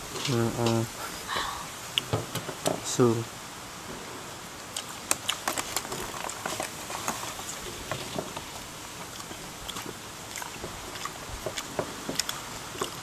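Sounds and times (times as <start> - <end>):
rice paper crackling: 4.8 - 13.0.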